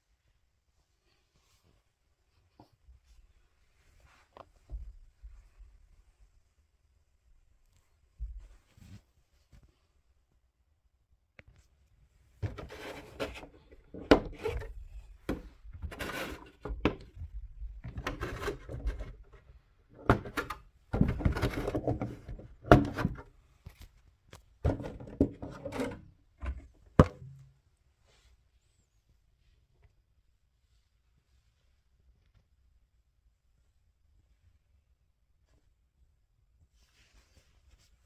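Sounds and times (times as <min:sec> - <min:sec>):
plastic shell rubbing and rattling: 0:12.4 - 0:23.3, 0:24.6 - 0:27.4.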